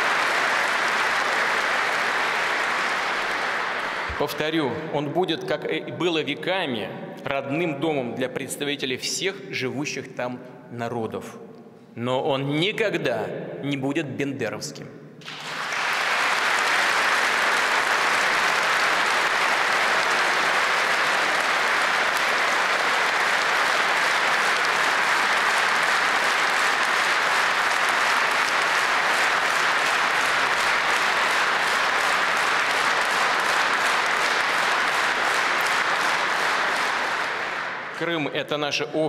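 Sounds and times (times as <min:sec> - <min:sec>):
large audience applauding: 0:00.0 - 0:04.7, 0:15.2 - 0:38.2.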